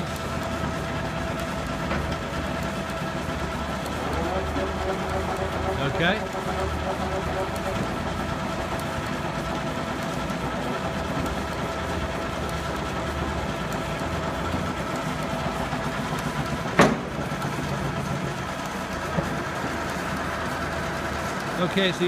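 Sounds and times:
lathe humming and whining: 0:00.0 - 0:22.0
sharp mechanical clunk: 0:16.8 - 0:17.1.

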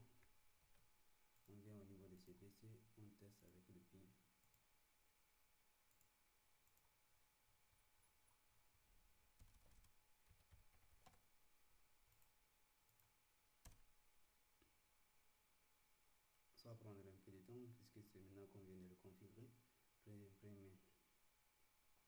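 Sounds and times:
computer keyboard clicks: 0:09.4 - 0:11.2.

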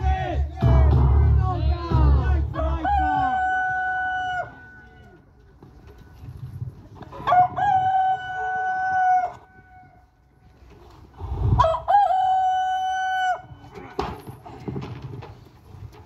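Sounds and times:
rooster crowing: 0:02.6 - 0:04.9, 0:07.2 - 0:09.8, 0:11.6 - 0:13.6.

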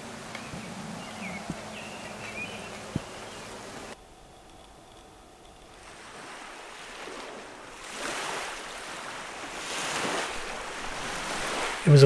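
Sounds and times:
waves washing onto stony beach: 0:05.6 - 0:12.0.

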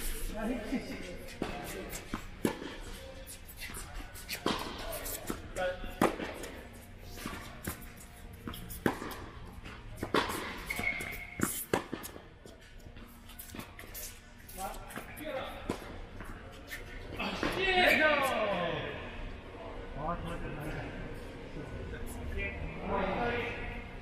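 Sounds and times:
tennis balls struck by rackets: 0:01.3 - 0:03.1, 0:03.7 - 0:12.3.

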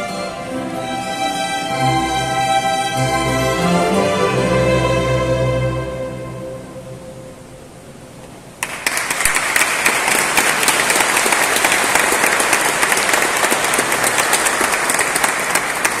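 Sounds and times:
audience applause: 0:08.6 - 0:16.0.

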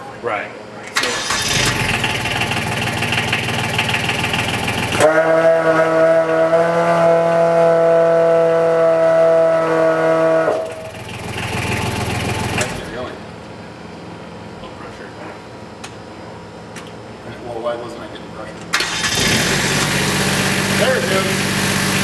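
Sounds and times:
pump engine running: 0:18.8 - 0:22.0.

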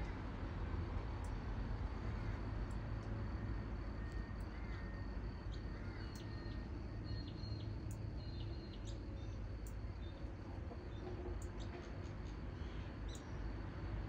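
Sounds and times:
faint bird chirps: 0:04.0 - 0:13.4.

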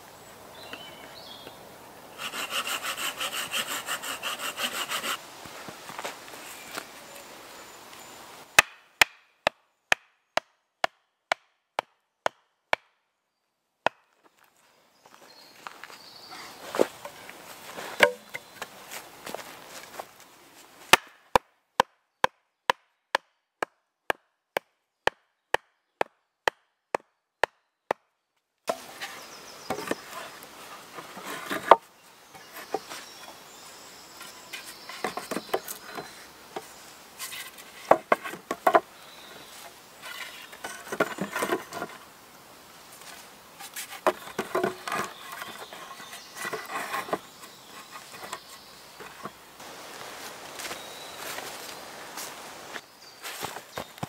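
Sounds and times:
sharp wooden strikes: 0:08.6 - 0:12.9, 0:18.0 - 0:18.4, 0:20.9 - 0:28.0
wooden logs knocking: 0:18.0 - 0:18.4
rustle of leaf litter: 0:49.6 - 0:54.0.

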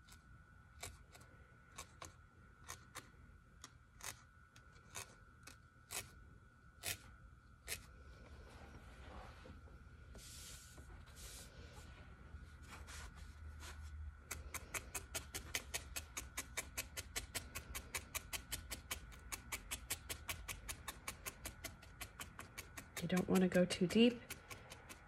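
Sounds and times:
felting needle clicks: 0:14.3 - 0:25.0.

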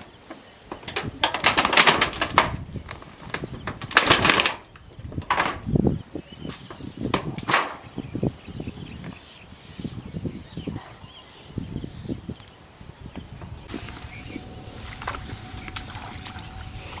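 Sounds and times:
rustling and clattering: 0:00.0 - 0:05.8
high insect drone: 0:13.7 - 0:17.0.

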